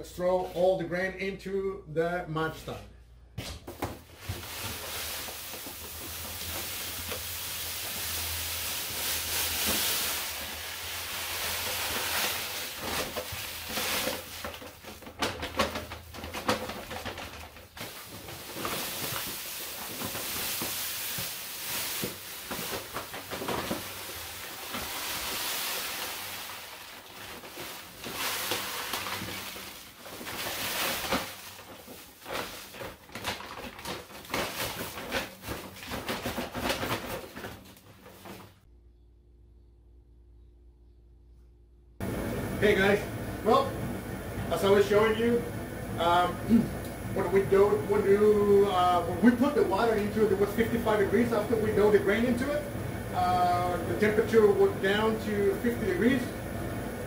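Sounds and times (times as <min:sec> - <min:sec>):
grain pouring hiss: 0:04.1 - 0:14.9, 0:17.7 - 0:33.1.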